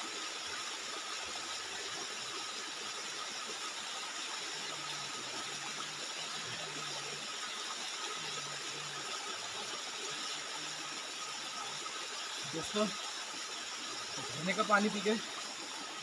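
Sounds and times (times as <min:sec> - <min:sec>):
waterfall rushing: 0:11.7 - 0:16.0.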